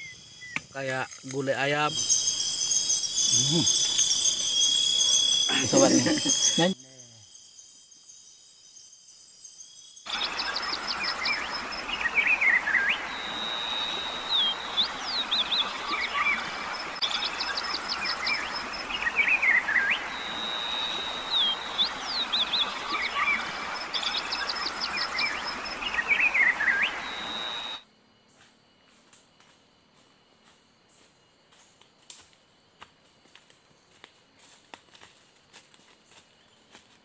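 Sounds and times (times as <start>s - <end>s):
faint night crickets: 0.0s - 37.0s
bird calls: 10.1s - 27.8s.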